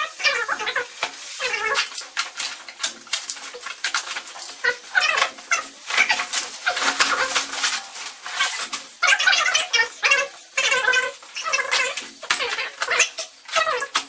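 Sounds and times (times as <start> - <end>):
plastic wrapping tearing: 0.0 - 14.0.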